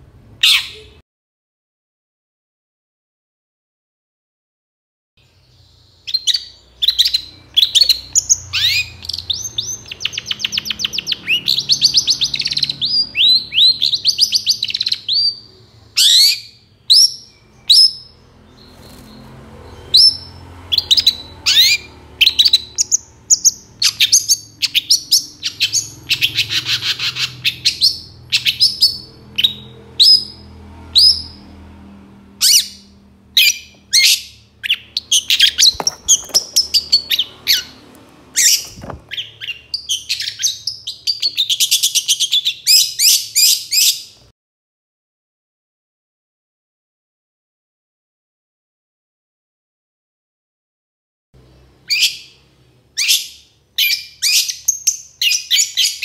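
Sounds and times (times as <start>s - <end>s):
bird singing sharp falling notes: 33.4s - 43.9s
bird harsh rattling chatter: 35.4s - 37.8s.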